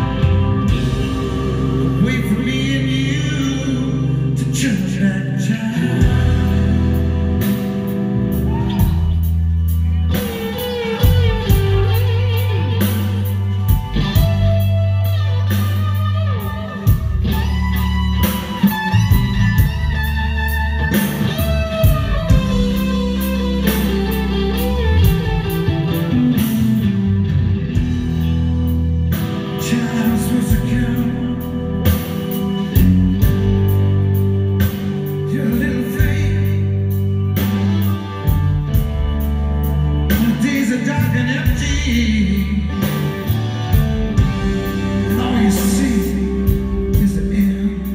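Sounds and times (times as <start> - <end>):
live rock band playing: 0.0 - 47.9.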